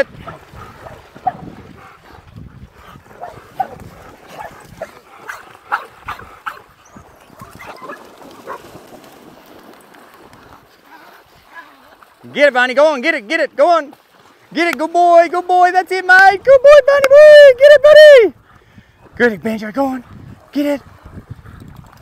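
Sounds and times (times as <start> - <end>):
dogs splashing in water: 0.0 - 13.1, 13.8 - 14.6
dogs barking and yipping: 0.2 - 2.0, 3.0 - 8.8.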